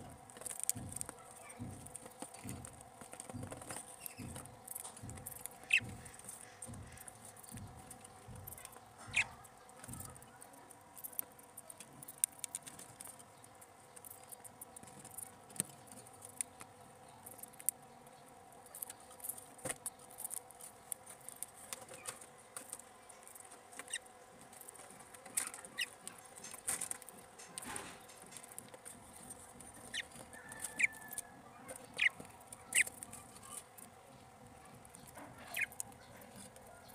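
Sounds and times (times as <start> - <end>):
budgerigars scrabbling and clicking: 0.0 - 36.9
budgerigar chirps: 5.6 - 5.9, 9.0 - 9.4, 31.9 - 32.9, 35.4 - 35.7.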